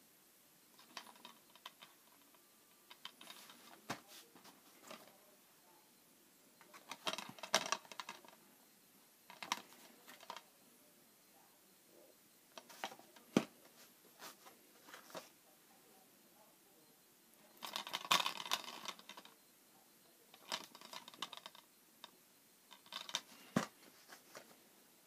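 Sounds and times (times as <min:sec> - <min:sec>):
plastic cases clicking: 0:06.7 - 0:08.4.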